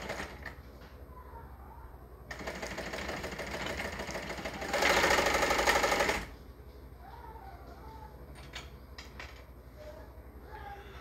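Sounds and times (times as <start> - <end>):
sewing machine stitching rattle: 2.3 - 6.3.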